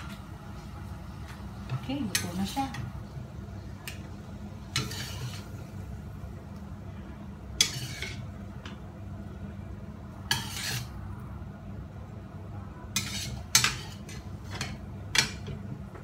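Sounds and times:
metal ladle scraping a wok: 4.7s - 5.7s, 7.6s - 8.4s, 10.2s - 11.0s, 12.9s - 15.4s.

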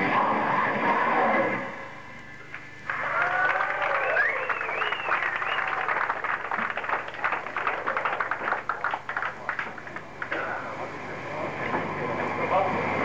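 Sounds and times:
scattered clapping: 2.4s - 10.6s
crowd cheering: 2.8s - 10.3s
gliding shouts or whistles: 2.9s - 5.9s.

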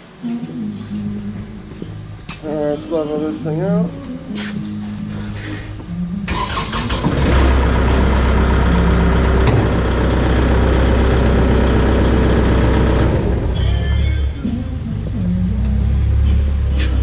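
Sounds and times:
tractor diesel engine running: 6.1s - 17.0s.

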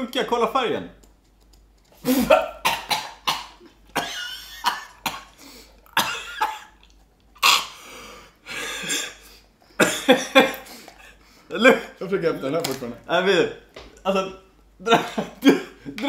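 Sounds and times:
men coughing: 2.0s - 6.8s, 8.4s - 12.0s, 14.8s - 16.0s
men laughing: 9.8s - 11.9s, 14.8s - 16.0s.

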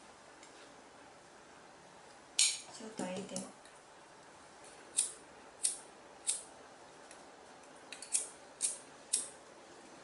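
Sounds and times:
lighter clicking: 4.9s - 6.5s, 7.9s - 9.4s.

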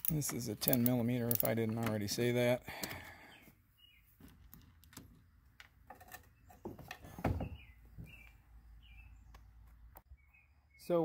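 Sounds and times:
nut driver metal clicks: 0.0s - 2.0s
birds chirping: 0.0s - 11.0s.

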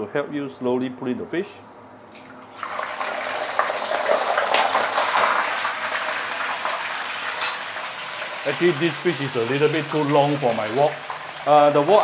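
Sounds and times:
oil sizzling and crackling: 2.2s - 12.0s.

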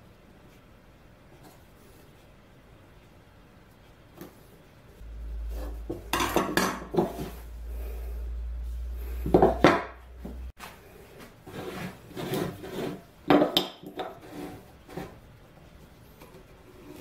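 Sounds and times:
low hum: 4.9s - 10.6s
wood sliding on wood: 10.2s - 13.0s, 14.0s - 15.2s.

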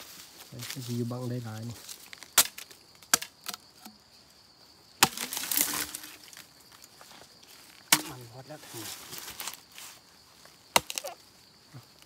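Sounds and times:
faint insect whine: 0.0s - 12.0s
bamboo splintering crackle: 1.8s - 4.0s, 5.0s - 6.4s, 7.7s - 8.3s, 10.7s - 11.2s
machete chopping bamboo: 2.3s - 4.0s, 5.0s - 6.1s, 7.9s - 8.2s, 10.7s - 11.1s.

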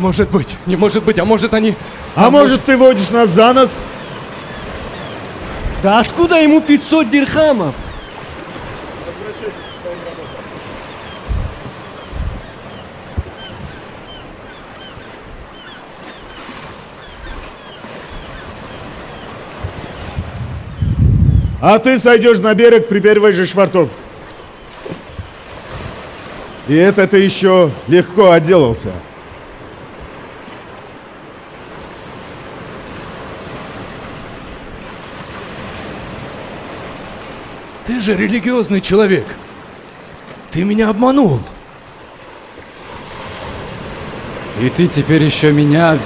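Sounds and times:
waves washing: 0.0s - 46.0s
faint high calls: 2.0s - 5.5s, 6.2s - 20.0s.

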